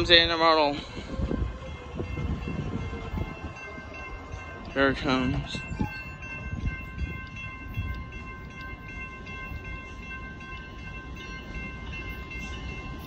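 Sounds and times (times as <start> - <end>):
railroad crossing bell ringing: 0.0 - 13.0.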